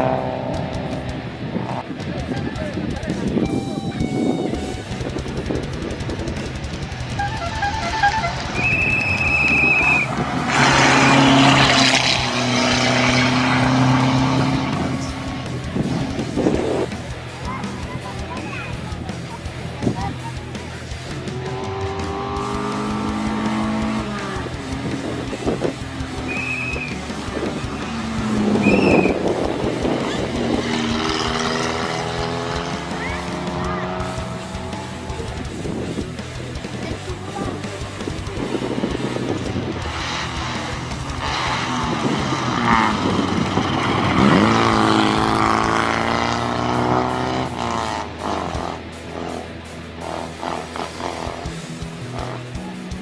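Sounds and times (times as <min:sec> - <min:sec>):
rally car engine racing past: 0:00.0 - 0:01.8, 0:07.2 - 0:16.5, 0:38.5 - 0:49.4
rally car engine at steady revs: 0:00.0 - 0:03.4, 0:08.2 - 0:53.0
high steady tone: 0:03.4 - 0:05.4
tyres on gravel: 0:04.2 - 0:48.9
high whistle-like tones: 0:07.1 - 0:10.1, 0:26.2 - 0:27.0, 0:28.5 - 0:29.2.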